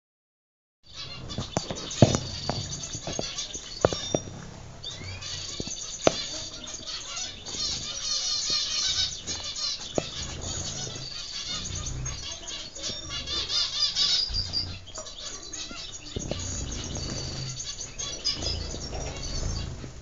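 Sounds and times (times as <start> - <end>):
finches chirping: 0.9 - 20.0
wing flutters: 0.9 - 20.0
sharp taps: 5.5 - 6.5.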